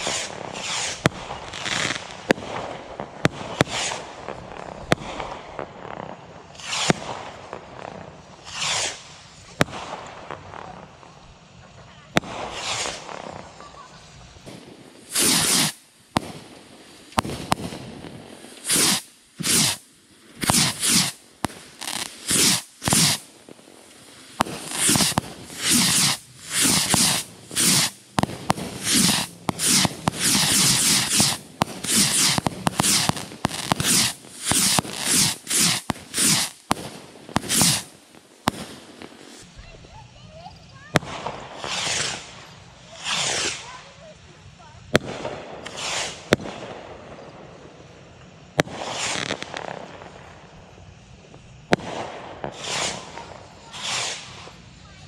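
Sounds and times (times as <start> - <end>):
bottle rockets whooshing: 15.1 - 15.8, 18.6 - 19.8, 20.4 - 21.2, 24.6 - 36.6
sharp pops: 18.5 - 39.4.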